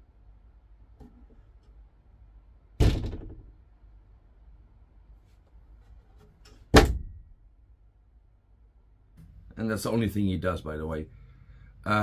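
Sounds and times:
wooden cupboard door banging: 0:06.7 - 0:07.2.

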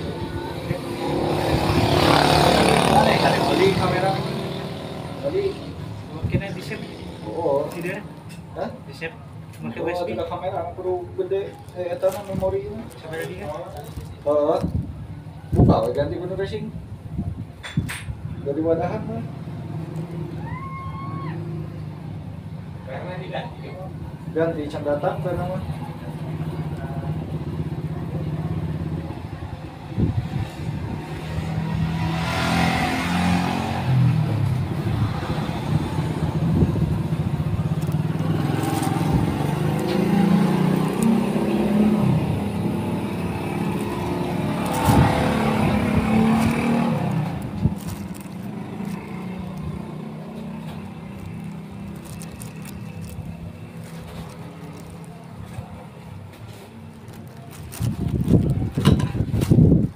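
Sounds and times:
vehicle engine running: 0:35.7 - 0:59.8.

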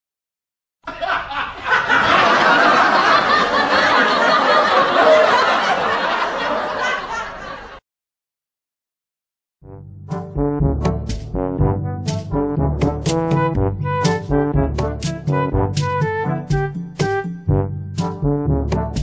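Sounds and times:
crowd laughing: 0:00.8 - 0:07.8.

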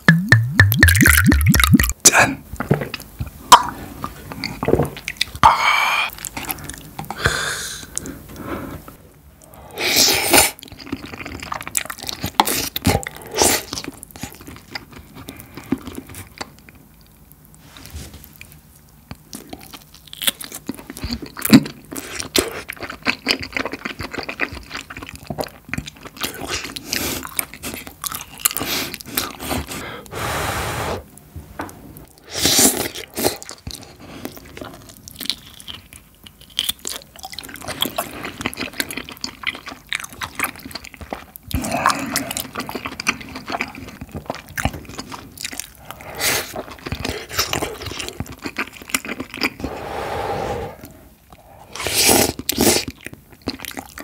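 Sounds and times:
loud slurps: 0:30.1 - 0:31.1, 0:49.4 - 0:52.8
wet chewing and biting: 0:51.3 - 0:54.0.

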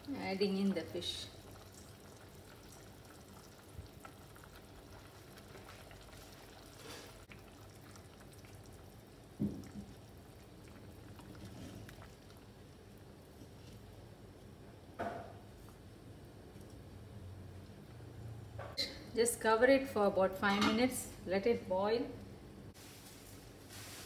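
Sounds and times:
gravy bubbling in pot: 0:00.0 - 0:18.1.

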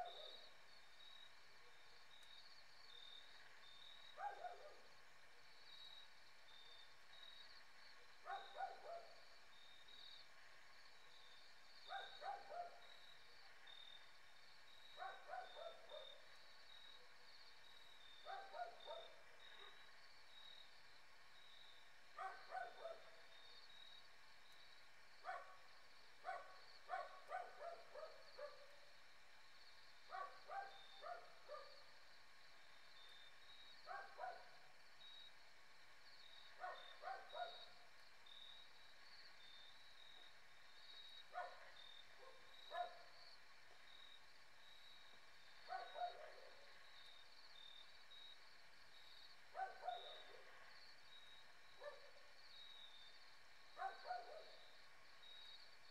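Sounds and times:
night insects chirping: 0:00.0 - 0:55.9
dog barking: 0:04.2 - 0:04.9, 0:08.2 - 0:09.2, 0:11.9 - 0:12.9, 0:15.0 - 0:16.1, 0:18.3 - 0:19.8, 0:22.2 - 0:23.2, 0:25.2 - 0:25.6, 0:26.2 - 0:28.7, 0:30.1 - 0:31.8, 0:33.9 - 0:34.6, 0:36.6 - 0:37.7, 0:41.4 - 0:43.1, 0:45.7 - 0:46.6, 0:49.6 - 0:50.5, 0:51.8 - 0:52.2, 0:53.8 - 0:54.6.

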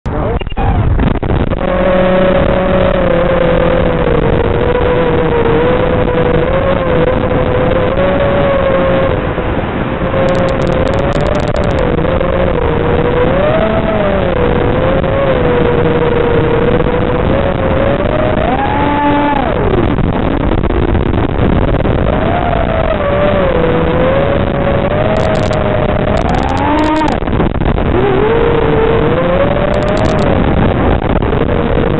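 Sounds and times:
wind noise: 0:00.0 - 0:31.9
drone motors whining: 0:10.1 - 0:20.2, 0:21.9 - 0:31.9.

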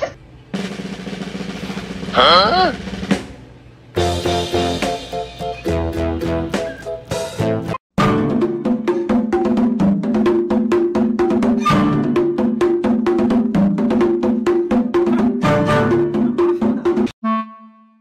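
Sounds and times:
music with percussive beat: 0:00.5 - 0:17.2.

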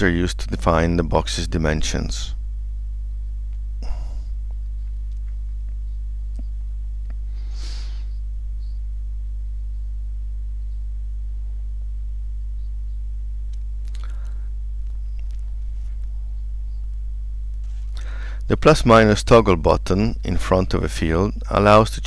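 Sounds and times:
electrical mains hum: 0:00.0 - 0:22.0
soft breath-like hiss: 0:07.3 - 0:08.2.

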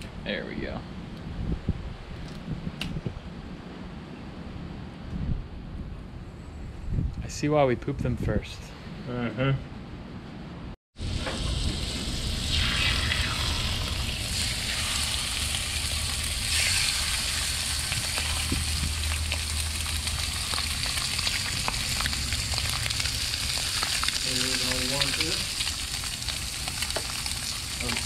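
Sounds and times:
food sizzling on a griddle: 0:11.0 - 0:28.0.

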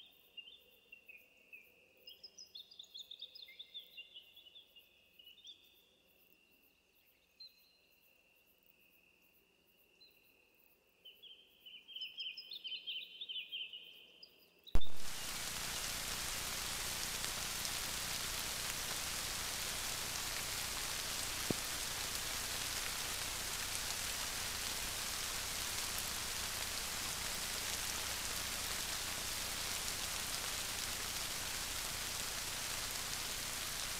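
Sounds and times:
rain falling on grass: 0:14.8 - 0:33.9.

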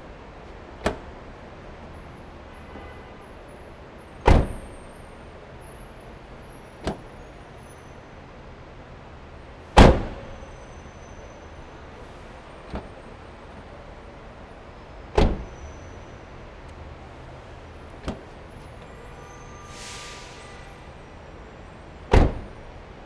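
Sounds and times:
car door slamming: 0:00.8 - 0:01.1, 0:04.2 - 0:04.7, 0:06.8 - 0:07.1, 0:09.8 - 0:10.3, 0:12.6 - 0:13.0, 0:15.1 - 0:15.6, 0:18.0 - 0:18.3, 0:22.1 - 0:22.6.

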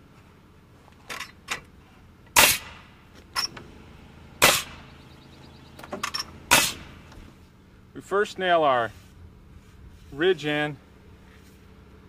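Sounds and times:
pneumatic nailer shots: 0:02.3 - 0:04.9, 0:05.8 - 0:07.3.

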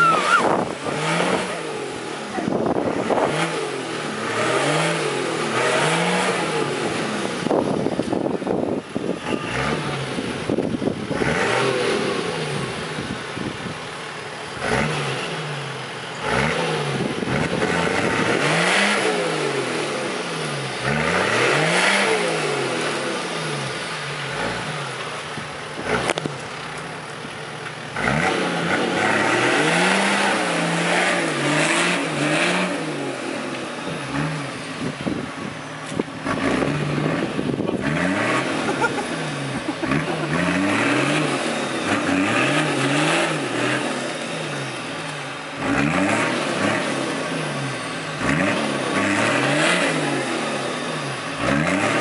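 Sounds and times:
engine revving: 0:00.0 - 0:13.6, 0:14.4 - 0:26.8, 0:27.8 - 0:52.0
tyres churning mud: 0:36.2 - 0:44.0.

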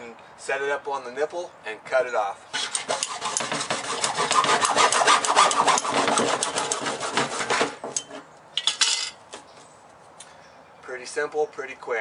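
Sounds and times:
hacksaw cutting plastic: 0:02.5 - 0:08.3.

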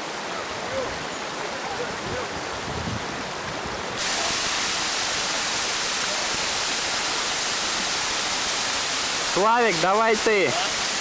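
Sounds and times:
running water rushing: 0:00.0 - 0:11.0.

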